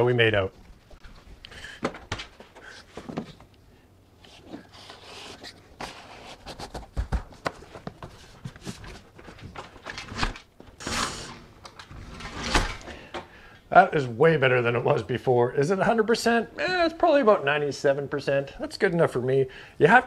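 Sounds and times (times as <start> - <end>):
door sweep scraping along sill: 10.8 - 12.9.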